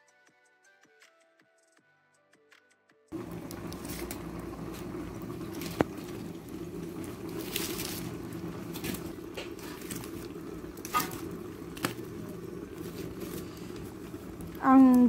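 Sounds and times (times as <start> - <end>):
fire crackling pops: 3.1 - 15.0
wood fire rushing: 3.1 - 15.0.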